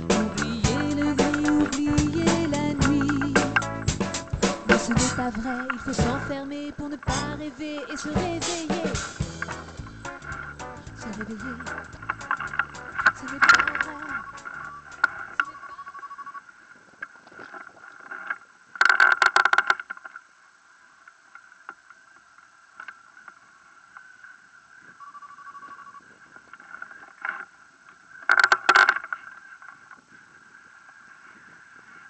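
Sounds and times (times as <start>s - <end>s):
rapid rattling: 0.0s - 15.4s.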